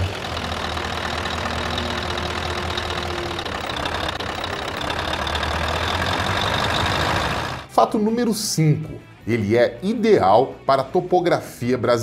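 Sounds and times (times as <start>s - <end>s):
diesel engine idling: 0.0s - 7.7s.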